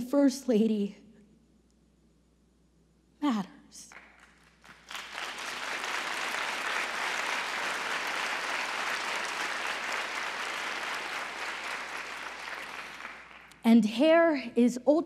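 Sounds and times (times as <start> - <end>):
audience applauding: 3.9 - 13.6.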